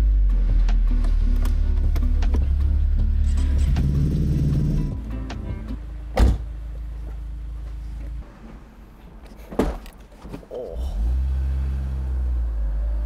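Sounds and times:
low engine hum: 0.0s - 8.8s, 10.8s - 13.0s
car suspension thumping: 4.9s - 7.2s.

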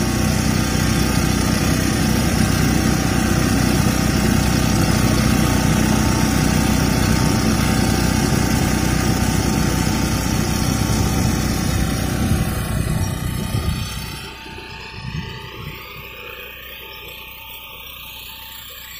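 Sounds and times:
diesel engine running under load: 0.0s - 18.9s.

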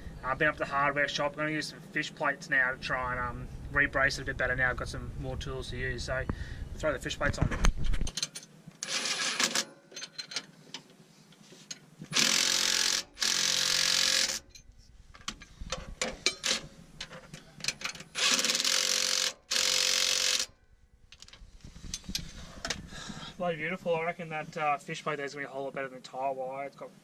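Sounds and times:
metal clicks and clinks: 9.5s - 10.5s
impact wrench hammering: 12.1s - 14.6s, 17.8s - 20.5s.

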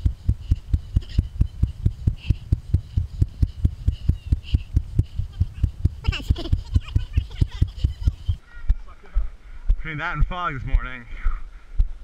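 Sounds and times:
faint voices: 5.1s - 11.5s.

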